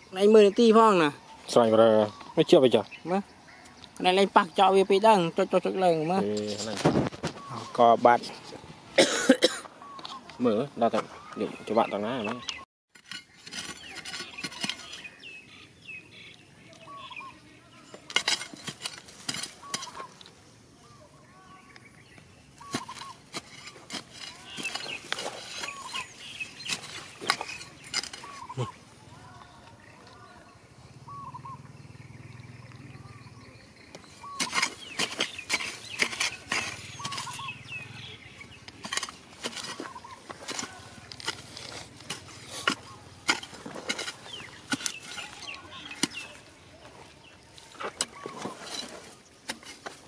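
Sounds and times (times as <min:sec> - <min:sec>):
birds chirping: 0:00.0 - 0:50.0
digging tool scraping stony soil: 0:06.1 - 0:08.7, 0:12.2 - 0:15.6, 0:17.8 - 0:20.4, 0:22.5 - 0:29.0, 0:33.9 - 0:50.0.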